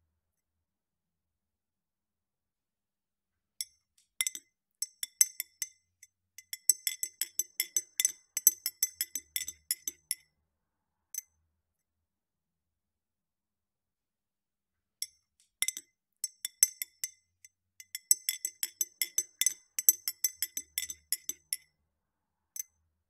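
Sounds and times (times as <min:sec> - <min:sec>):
spoon clinking in glass: 0:06.4 - 0:10.2, 0:17.8 - 0:21.6.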